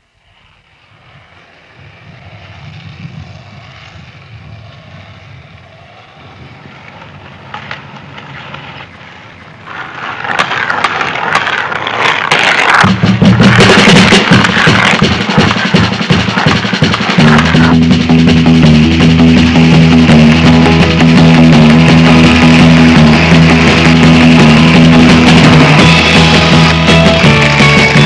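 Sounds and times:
skateboard wheels rolling on asphalt: 0.0 - 28.0
skateboard clicks: 6.3 - 18.6, 19.4 - 28.0.

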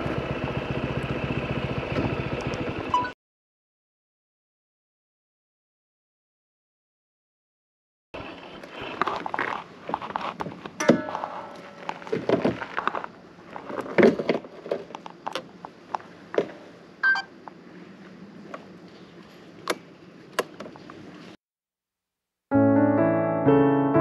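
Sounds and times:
piano piece: 10.8 - 12.2, 22.5 - 24.0.

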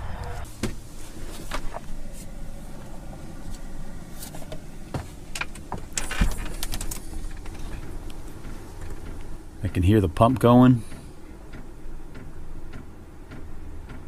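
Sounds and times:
air heater humming: 0.0 - 14.0.

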